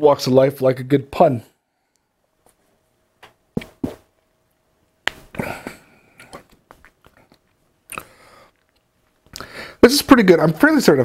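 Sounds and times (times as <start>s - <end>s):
mouth clicks: 5.1s - 9.5s
man swallowing gulps: 5.2s - 8.8s.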